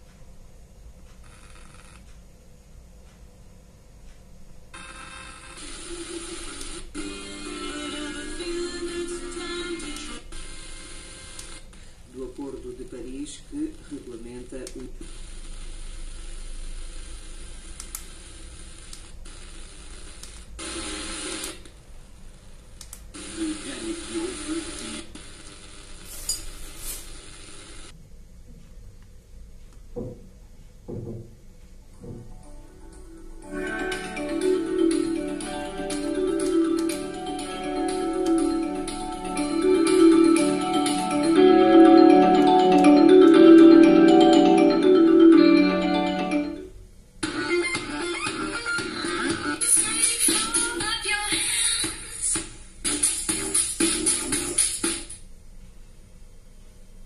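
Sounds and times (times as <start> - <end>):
radio static hiss: 4.7 - 21.8, 22.5 - 27.9
marimba music from a small speaker: 33.5 - 46.6.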